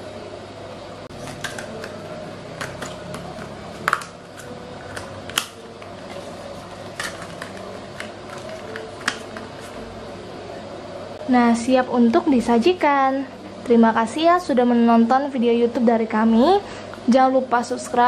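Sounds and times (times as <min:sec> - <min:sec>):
plastic lids clicking onto cups: 0:01.2 - 0:06.2, 0:06.8 - 0:09.8.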